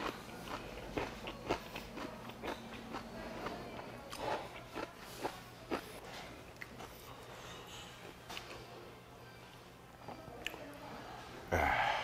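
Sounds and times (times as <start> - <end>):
chewing food: 0.0 - 8.6.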